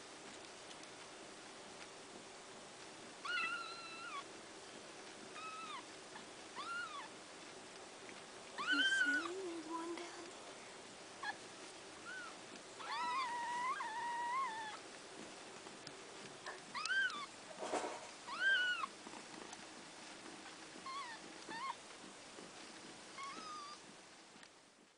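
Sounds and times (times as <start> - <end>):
newborn kittens mewing: 3.2 - 4.3, 5.3 - 7.2, 8.6 - 9.4, 12.0 - 14.8, 16.5 - 17.3, 18.2 - 19.0, 23.2 - 23.9.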